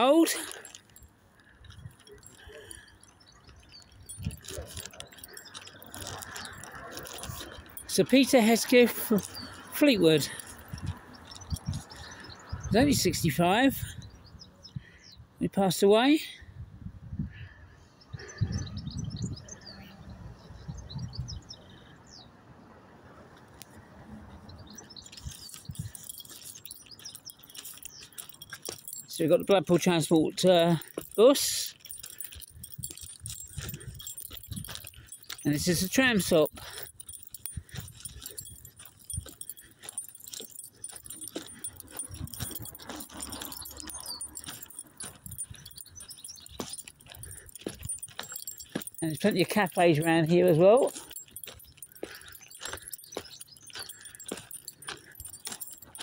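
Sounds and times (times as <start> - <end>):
small birds chirping: 0.0 - 16.2, 17.3 - 22.4, 23.4 - 56.0
light jingling: 0.0 - 16.5, 23.3 - 56.0
footsteps on pavement: 1.9 - 12.3, 24.7 - 56.0.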